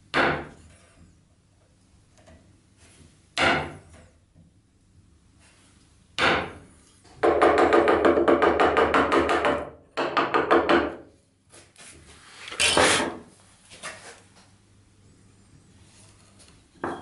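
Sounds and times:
chisel scraping wood: 12.4s - 13.2s.

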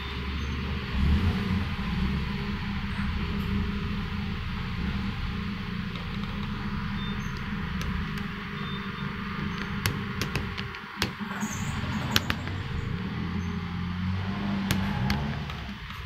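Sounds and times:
low mechanical hum: 0.0s - 16.0s
sharp clicks: 5.9s - 13.5s.

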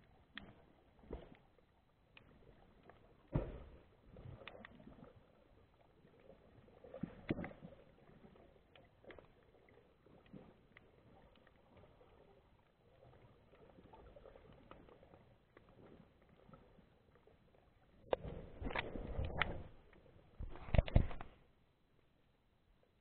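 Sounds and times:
faint clicks and knocks: 0.2s - 5.0s, 8.6s - 22.1s.

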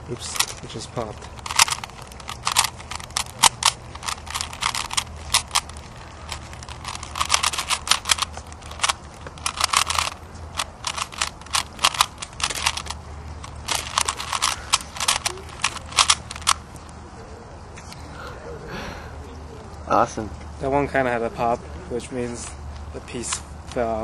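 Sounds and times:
plastic puzzle cube clicking: 0.2s - 16.6s.

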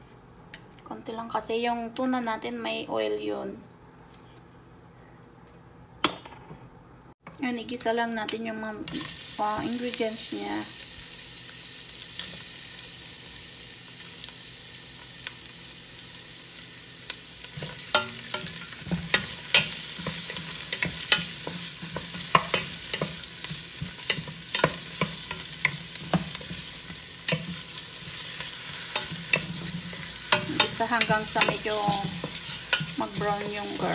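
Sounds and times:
onion and garlic sizzling in oil: 7.7s - 33.9s
wooden spoon scraping a pot: 17.6s - 33.9s.

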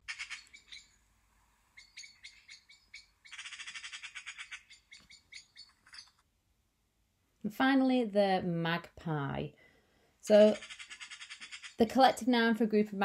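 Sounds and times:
magpie chattering: 0.0s - 1.0s, 1.8s - 6.2s, 10.3s - 11.9s.

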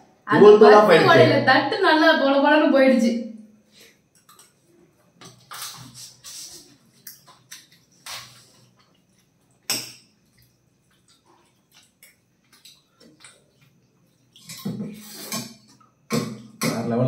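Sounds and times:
wet eating sounds: 4.2s - 16.7s
spoons scraping plates: 14.4s - 16.7s.

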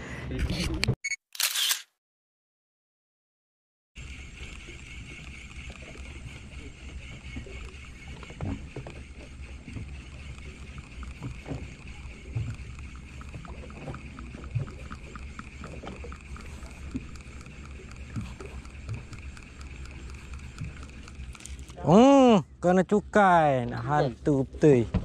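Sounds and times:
low boat rumble: 4.0s - 25.0s.

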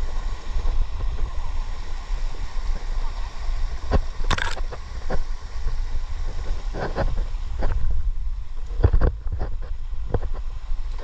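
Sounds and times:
knocks and scrapes on camera: 6.7s - 7.8s, 8.8s - 10.4s.

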